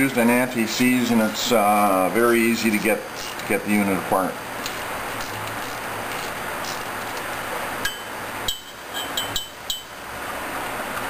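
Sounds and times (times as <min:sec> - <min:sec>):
light metallic clinks: 0:07.9 - 0:09.9.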